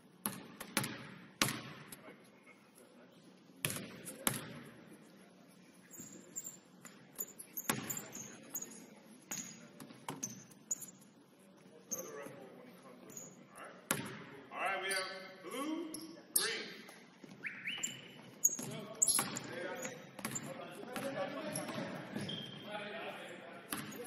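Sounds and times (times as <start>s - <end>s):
basketball bouncing on hardwood floor: 0.2s - 1.9s, 7.7s - 8.0s, 13.9s - 14.2s.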